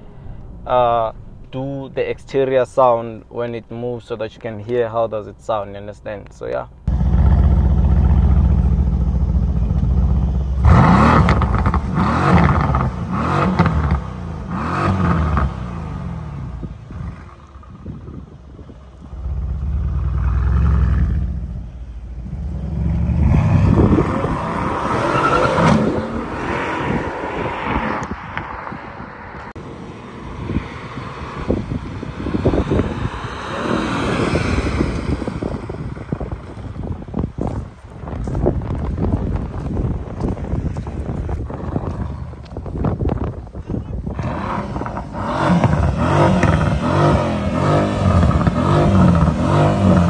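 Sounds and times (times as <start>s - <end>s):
exhaust pops: 6.9s - 15.5s, 44.0s - 50.0s
car engine revving: 6.9s - 17.8s, 19.0s - 28.2s, 30.2s - 35.7s, 44.1s - 50.0s.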